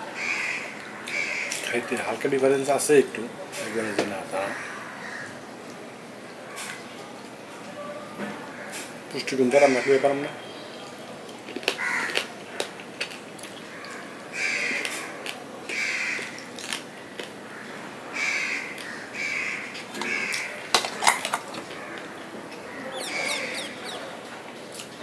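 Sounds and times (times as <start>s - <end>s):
wet chewing and lip-smacking: 11.2s - 17.4s.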